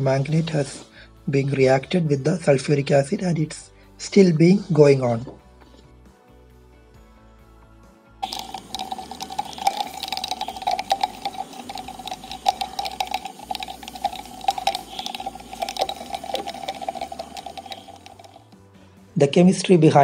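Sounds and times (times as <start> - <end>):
chemical reaction crackling and popping: 8.2 - 18.6.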